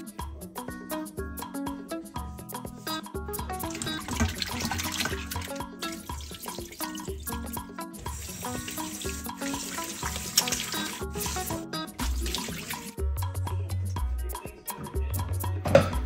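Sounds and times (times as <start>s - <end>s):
background music with beat: 0.0s - 16.0s
hands rubbing meat in water: 3.6s - 13.0s
tap water running into bowl: 3.6s - 13.0s.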